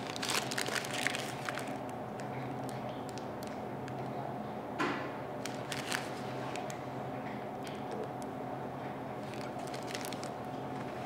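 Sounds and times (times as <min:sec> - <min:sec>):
plastic gloves crinkling: 0:00.0 - 0:03.4, 0:05.4 - 0:06.8, 0:09.2 - 0:11.0
room hum: 0:00.0 - 0:11.0.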